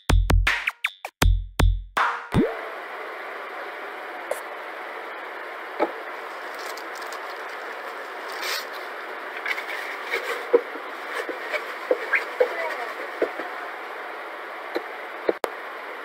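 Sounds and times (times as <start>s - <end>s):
steady hiss: 2.8s - 16.0s
rustling scrape: 6.2s - 13.2s.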